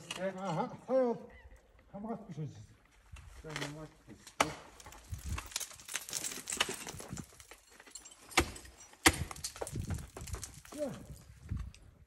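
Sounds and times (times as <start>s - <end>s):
climbing hardware clinking and scraping: 3.5s - 12.0s.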